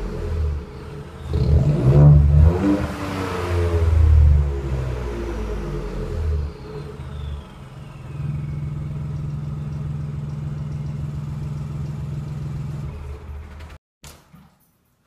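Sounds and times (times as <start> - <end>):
car engine exhaust drone: 0.0 - 13.6.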